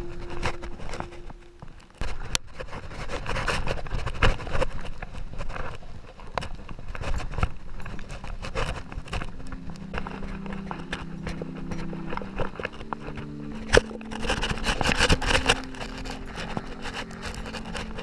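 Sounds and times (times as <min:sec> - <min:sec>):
steady low hum: 0:00.0 - 0:02.0, 0:07.4 - 0:18.0
bike rattling: 0:00.0 - 0:18.0
tyres crunching over stones: 0:00.0 - 0:18.0.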